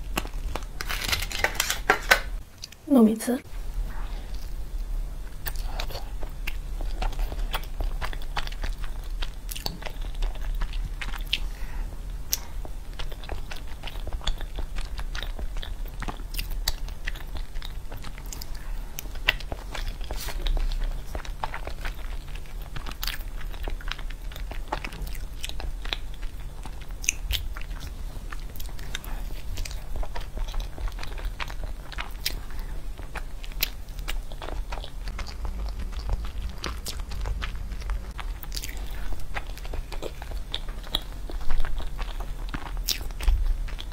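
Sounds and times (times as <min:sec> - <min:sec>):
chewing with wet clicks: 0:05.2 - 0:11.5, 0:12.1 - 0:43.9
low hum: 0:25.8 - 0:43.9.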